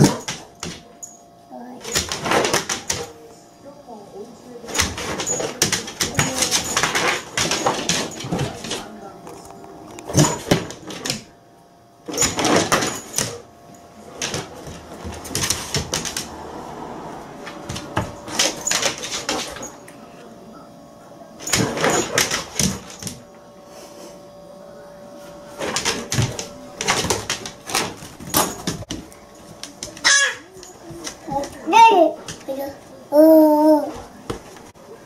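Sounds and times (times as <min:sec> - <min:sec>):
dog claws clicking on wooden floor: 0:14.2 - 0:16.4.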